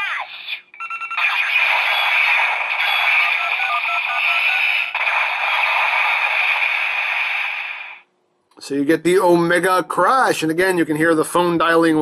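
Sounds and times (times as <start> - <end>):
phone dialing beeps: 0.8 - 1.2, 2.8 - 4.4
toy explosion and slash effect: 1.2 - 8.0.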